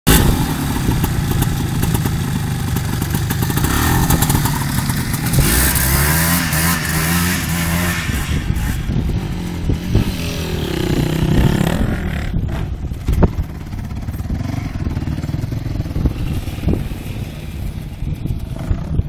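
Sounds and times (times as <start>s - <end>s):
clatter: 0.0s - 10.2s
atv engine revving: 0.1s - 19.0s.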